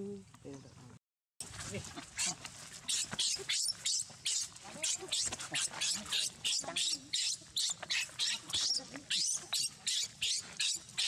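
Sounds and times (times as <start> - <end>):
baby monkey screaming: 2.2 - 11.0.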